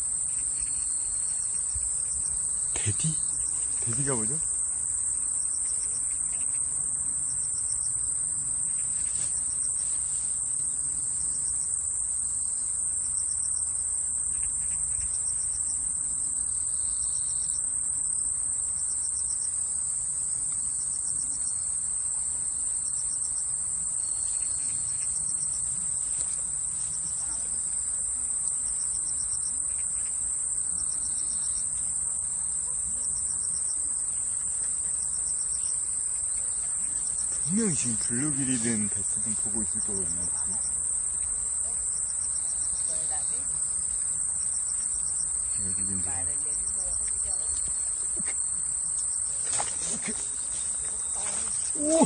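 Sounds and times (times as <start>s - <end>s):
insects shrill drone: 0.0s - 19.6s, 32.6s - 52.0s
insect pulsed chirp: 0.0s - 52.0s.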